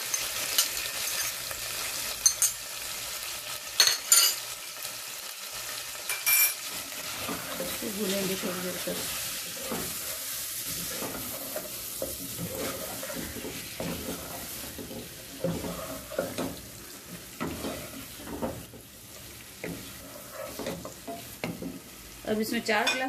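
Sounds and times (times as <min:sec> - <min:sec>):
chicken sizzling in hot oil: 0:00.0 - 0:22.9
spatula scraping and knocking pot: 0:07.1 - 0:21.9.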